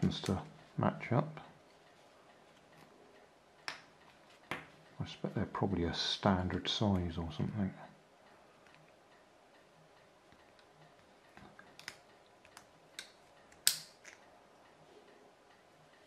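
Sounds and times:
plastic parts clicking and snapping: 0:10.3 - 0:14.3.

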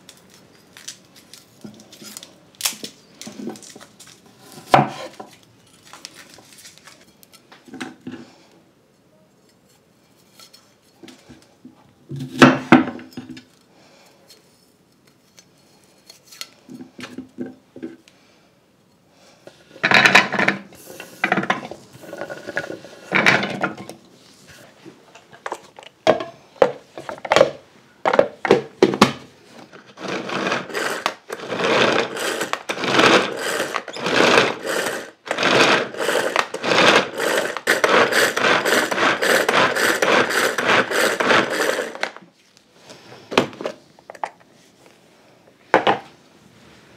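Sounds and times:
hand food chopper mincing: 0:29.8 - 0:42.2.

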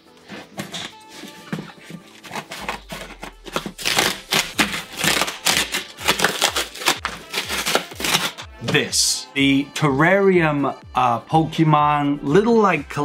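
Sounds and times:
cardboard and tape ripping: 0:00.2 - 0:08.5.

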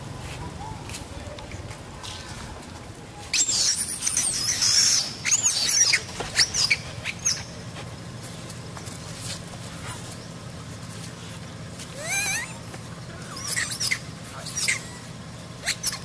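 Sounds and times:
monkeys screaming: 0:03.3 - 0:07.8, 0:11.8 - 0:16.0.

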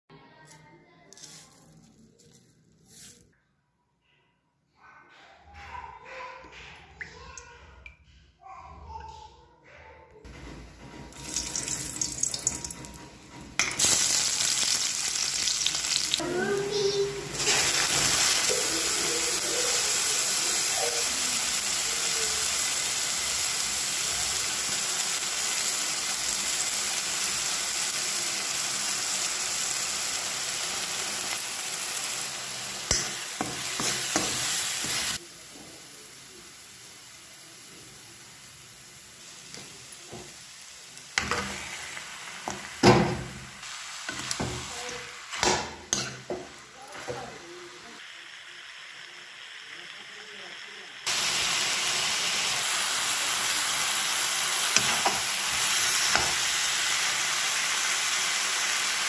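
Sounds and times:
onions sizzling in hot oil: 0:11.1 - 0:59.0
metal spoon scraping a pan: 0:32.9 - 0:35.2, 0:54.8 - 0:56.4.

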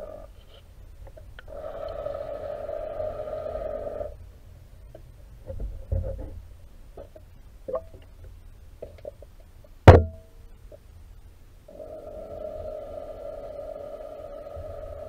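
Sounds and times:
electric motor hum underwater: 0:11.7 - 0:15.0.

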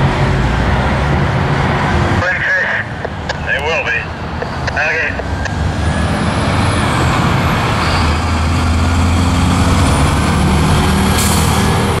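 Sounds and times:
truck engines droning: 0:00.0 - 0:12.0
tyre and road noise: 0:00.0 - 0:12.0.

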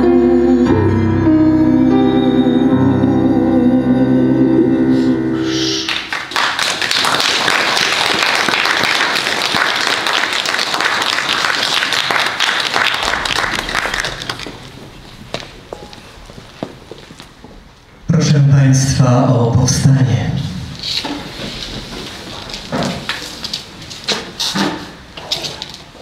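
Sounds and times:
song's held notes: 0:00.0 - 0:06.3
crowd applauding: 0:05.8 - 0:15.5.

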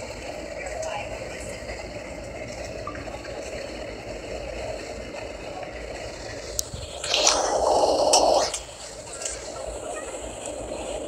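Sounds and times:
jet engine hum: 0:00.0 - 0:11.0
rushing air: 0:06.0 - 0:11.0.

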